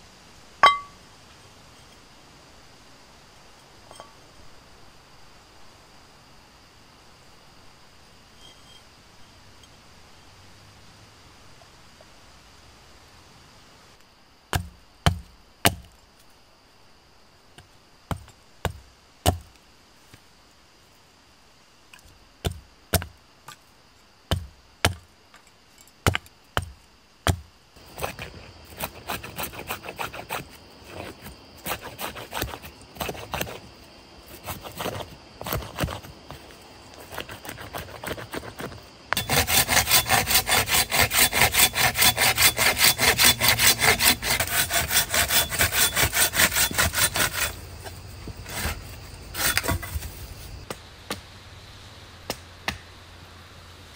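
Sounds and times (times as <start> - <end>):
hand saw strokes: 27.9 - 33.7, 34.3 - 36.1, 37.0 - 47.6, 48.4 - 50.1.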